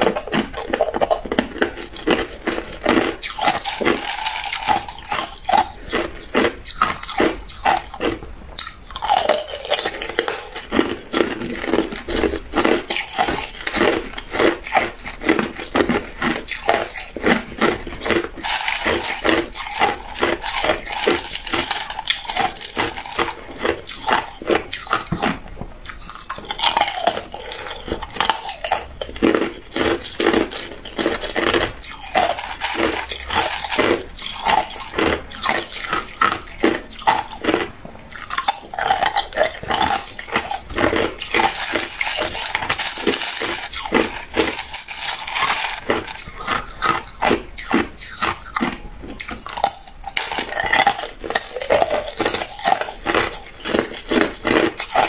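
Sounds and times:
ice being chewed: 0:00.0 - 0:55.0
ice cubes clinking in glass bowl: 0:38.2 - 0:47.4.

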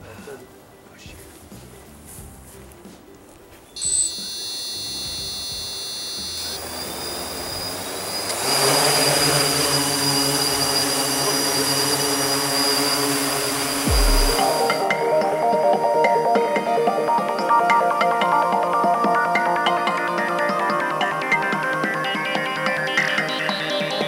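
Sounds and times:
drone motors whining: 0:03.8 - 0:15.0
drone propeller whir: 0:03.8 - 0:17.8.

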